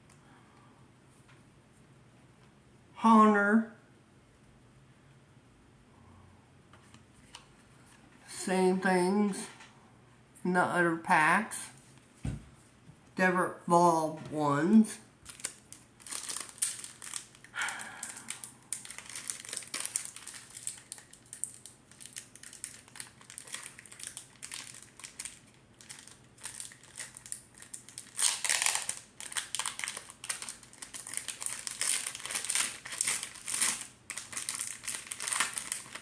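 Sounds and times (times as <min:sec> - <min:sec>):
foil wrapper crinkling: 0:15.2 - 0:36.0.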